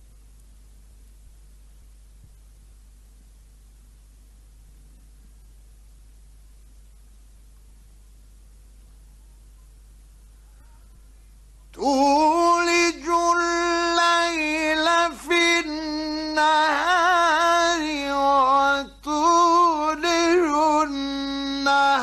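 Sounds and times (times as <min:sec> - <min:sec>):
faint hiss: 0:00.0 - 0:22.0
man chanting melodically: 0:11.7 - 0:22.0.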